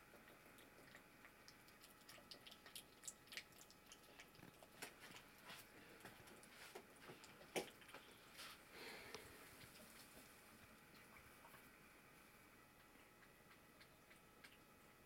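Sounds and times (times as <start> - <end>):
cat chewing wet food: 0.0 - 8.4, 12.5 - 15.0.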